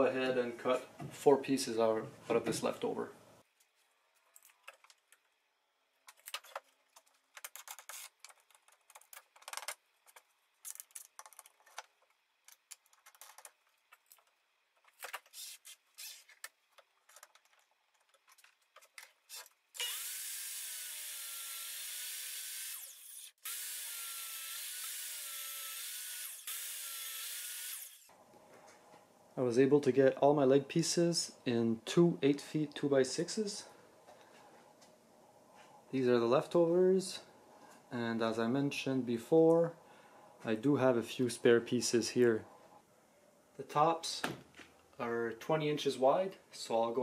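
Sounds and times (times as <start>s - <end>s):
miter saw cutting wood: 19.8s - 28.1s.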